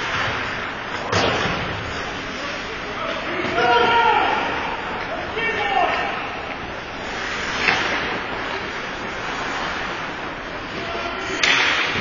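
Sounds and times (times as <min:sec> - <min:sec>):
echoing rink noise: 0:00.0 - 0:12.0
skates hissing on ice: 0:07.0 - 0:10.3
sharp crack: 0:11.4 - 0:12.0.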